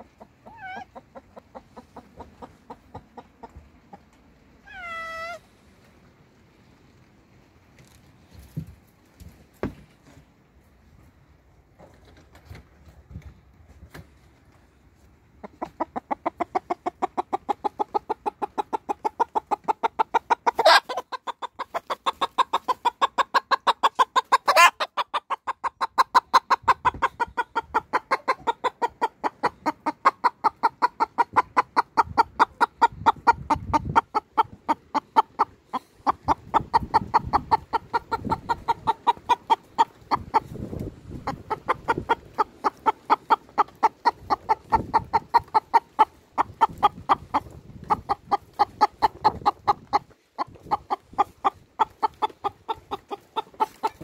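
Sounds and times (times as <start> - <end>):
hen clucking: 0.0 - 7.0, 14.6 - 54.0
hen squawking: 0.4 - 1.0, 4.6 - 5.4.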